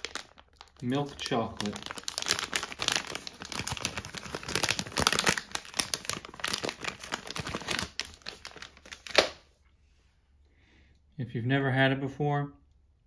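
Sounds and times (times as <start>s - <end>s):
plastic wrapper crinkling: 0.0s - 9.4s.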